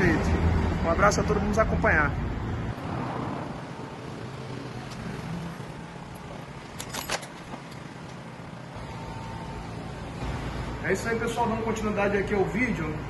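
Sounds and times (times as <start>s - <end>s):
metal parts clicking: 6.7s - 7.8s.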